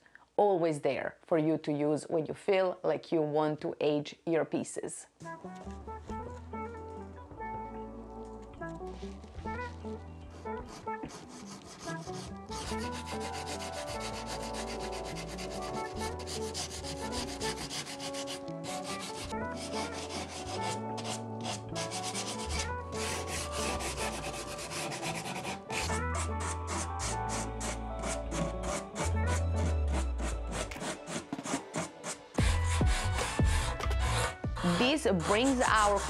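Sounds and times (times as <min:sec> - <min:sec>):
background music with steady bass: 0:05.2 - 0:36.0
sanding sponge rubbing wood: 0:10.3 - 0:36.0.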